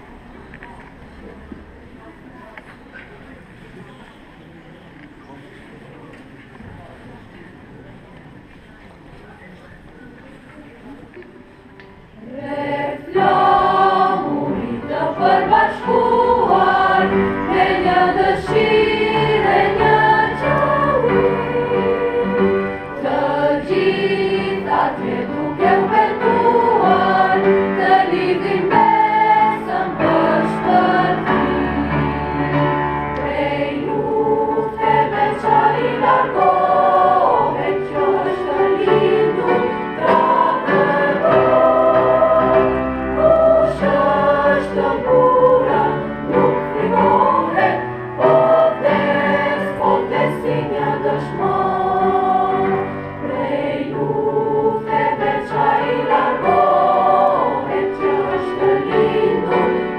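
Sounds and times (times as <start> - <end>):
school choir singing: 12.2 - 59.9.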